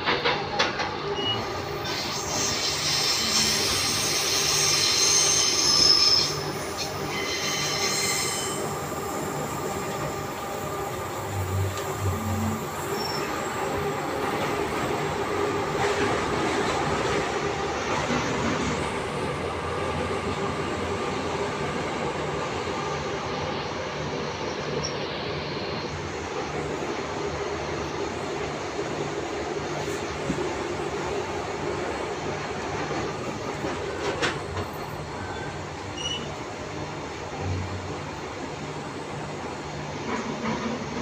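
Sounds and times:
train wheel squeal: 0.0s - 15.0s, 24.4s - 25.9s, 33.6s - 36.5s.

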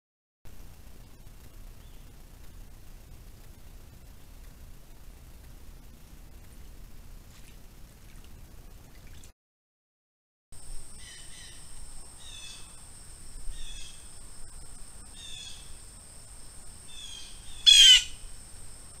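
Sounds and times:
birds singing: 10.9s - 16.0s, 16.8s - 19.0s
harsh bird call: 17.0s - 18.3s.

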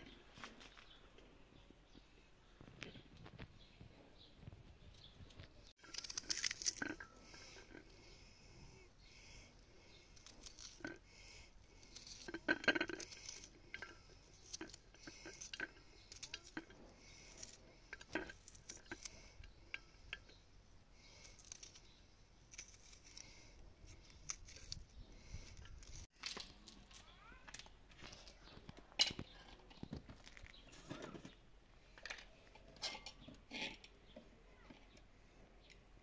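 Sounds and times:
hands handling food: 5.2s - 20.4s.

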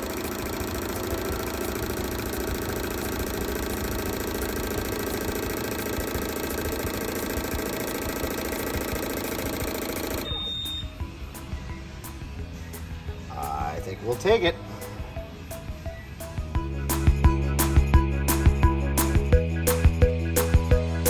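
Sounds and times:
fuel injectors chattering: 0.0s - 10.8s
short high beep: 10.2s - 11.0s.

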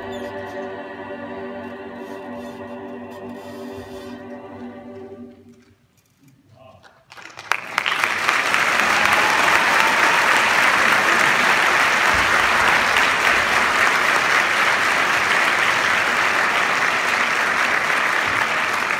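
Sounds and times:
audience applauding: 6.9s - 18.9s.

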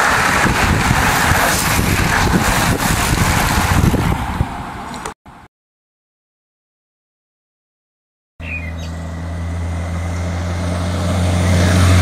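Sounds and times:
bicycles rushing past: 0.0s - 4.7s
wind buffeting microphone: 0.0s - 5.1s.

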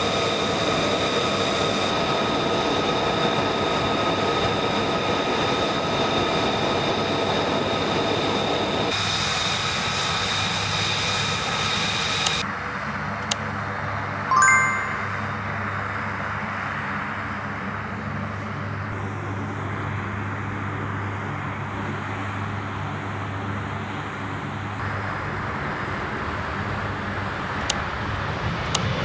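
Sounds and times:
jet engine low hum: 0.0s - 12.4s.

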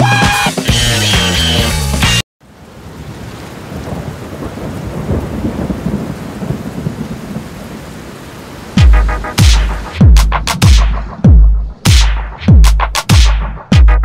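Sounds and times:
electronic music with bass hit: 0.0s - 2.2s, 8.8s - 14.0s
rain hiss: 2.4s - 10.0s
rolling thunder rumble: 3.0s - 7.8s.

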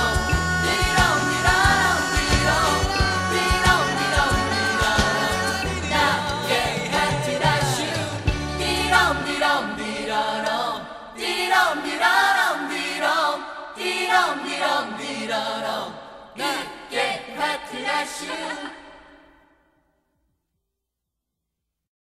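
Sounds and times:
song with wavering singing voices: 0.0s - 19.7s.

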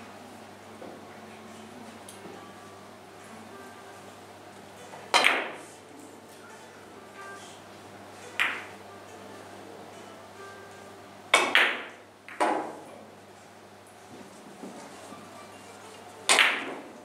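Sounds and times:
billiard balls clicking: 5.1s - 5.7s, 8.4s - 8.8s, 11.4s - 13.0s, 16.3s - 17.0s.

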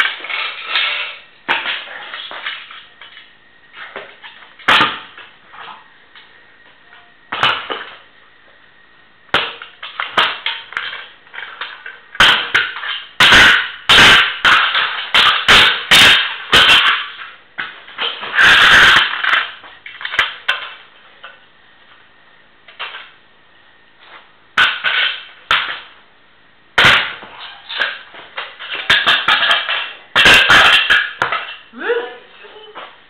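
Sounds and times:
scooter smashing on concrete: 0.0s - 5.8s, 7.3s - 8.0s, 9.3s - 20.9s, 22.7s - 23.2s, 24.0s - 26.0s, 26.8s - 31.7s.

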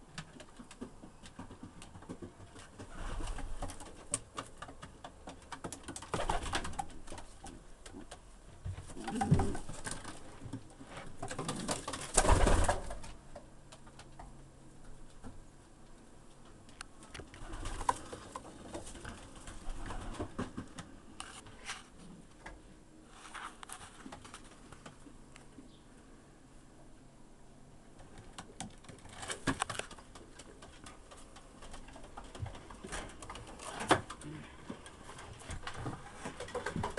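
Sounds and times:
pigeons cooing: 8.9s - 10.0s.

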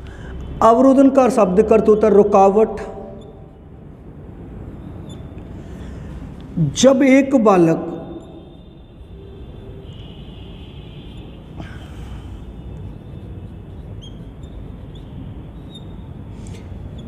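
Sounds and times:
faint high squeaks and ticks: 3.1s - 3.6s, 4.8s - 6.0s, 12.6s - 17.0s.

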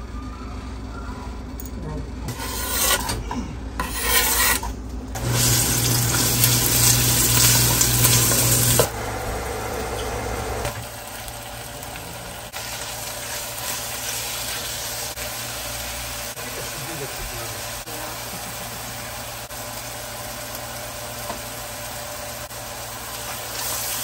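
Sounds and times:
food sizzling in hot oil: 5.2s - 24.0s.

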